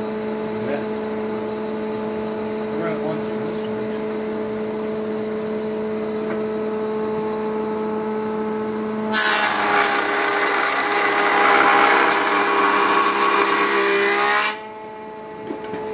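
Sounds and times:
jointer humming idle: 9.1 - 14.6
knives planing wood: 9.1 - 14.6.

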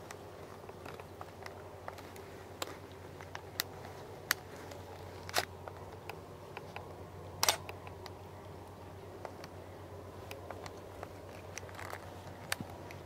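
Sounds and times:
sharp clicks and small cracks: 0.0 - 9.6, 10.2 - 13.0
low steady hum: 0.0 - 13.0.

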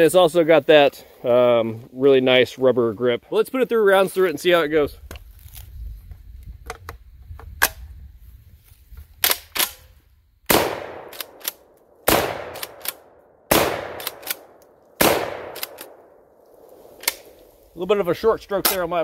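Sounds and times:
gun handling clicks: 9.2 - 9.8, 10.9 - 17.5
shotgun shots: 10.5 - 16.2
shotgun pump clacking: 14.0 - 14.4, 15.5 - 16.0.

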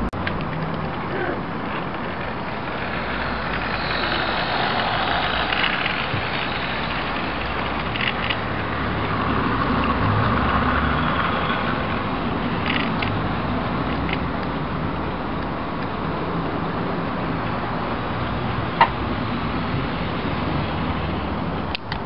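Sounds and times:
model train rumbling on track: 0.3 - 14.0.

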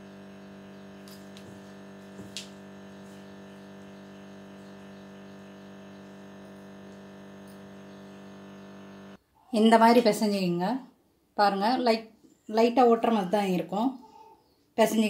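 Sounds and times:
electrical hum: 0.0 - 9.2.

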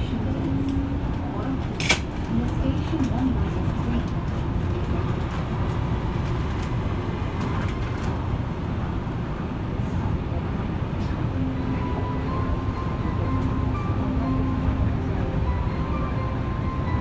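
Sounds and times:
monorail low rumble and hum: 0.0 - 17.0
steady pitched tone: 11.4 - 17.0.

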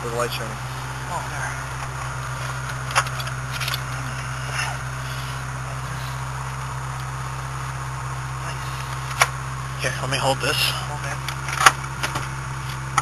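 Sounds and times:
car engine idling: 0.0 - 13.0
car battery handling clicks and scrapes: 1.8 - 4.8, 8.7 - 9.4, 11.1 - 13.0.

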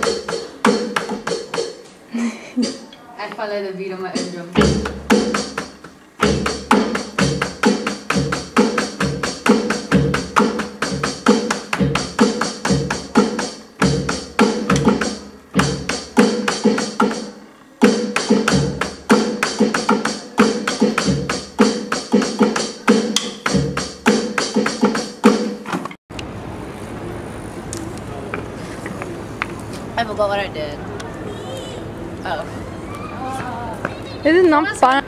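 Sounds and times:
drum and percussion beat: 0.0 - 1.9, 2.6 - 2.9, 4.1 - 25.8.

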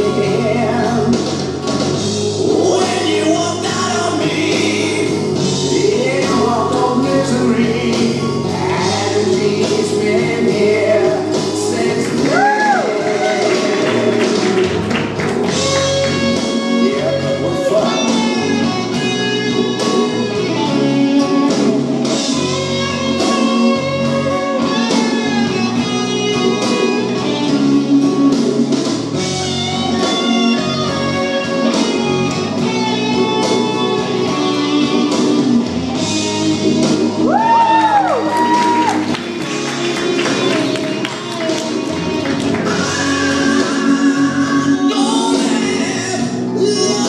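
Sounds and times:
person singing: 0.0 - 1.6, 2.4 - 21.6, 37.2 - 47.0
slow song with electric guitar: 0.0 - 47.0.

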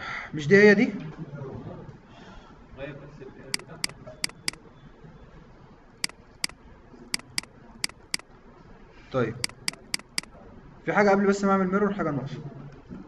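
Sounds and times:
computer mouse button clicking: 3.6 - 4.6, 7.2 - 8.2, 9.4 - 10.3.

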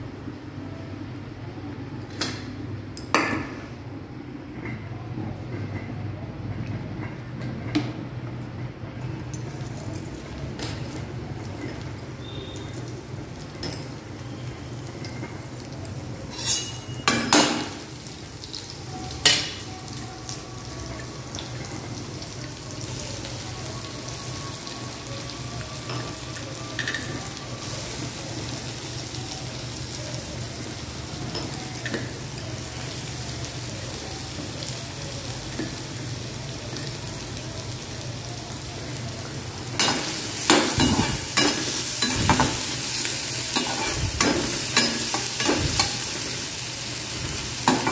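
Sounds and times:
onions sizzling in hot oil: 9.3 - 47.9
spatula scraping a pan: 16.3 - 17.0.

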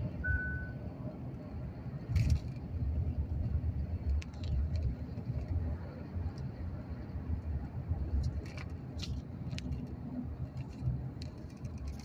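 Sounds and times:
road and engine rumble in car: 0.0 - 12.0.

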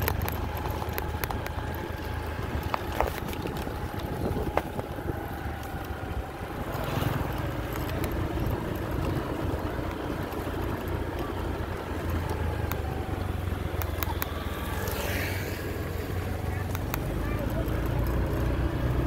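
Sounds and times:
motor scooter engine running: 0.0 - 19.0
wind noise on microphone: 2.3 - 7.0.

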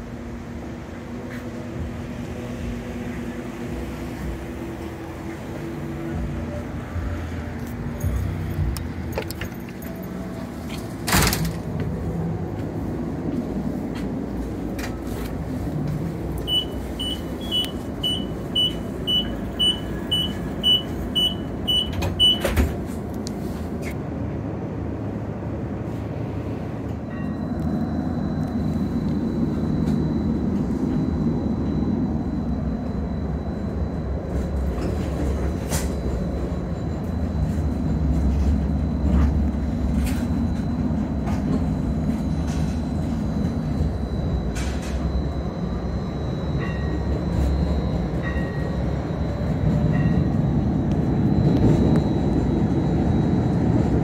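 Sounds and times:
streetcar high whine: 0.0 - 54.0
streetcar running rumble: 0.0 - 54.0
high warning beeps: 15.0 - 22.7, 27.0 - 54.0.

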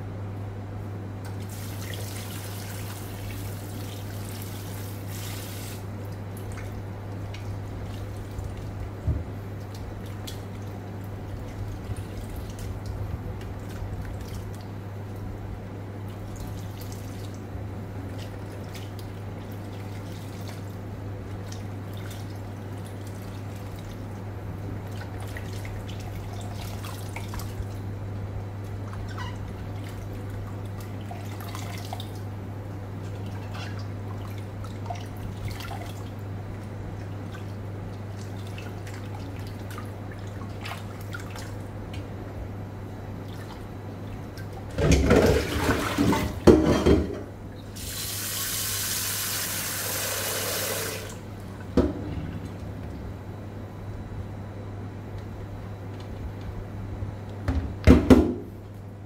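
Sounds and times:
steady low hum: 0.0 - 48.0, 50.9 - 59.0
water drips and splashes: 28.9 - 32.3, 33.0 - 36.2, 37.0 - 42.1.

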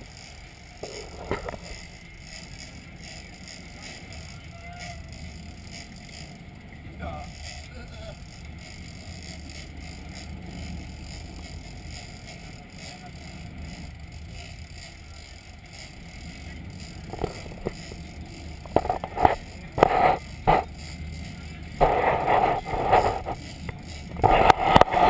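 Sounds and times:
boat engines rumbling: 0.0 - 25.0
water washing against boat: 21.7 - 25.0.

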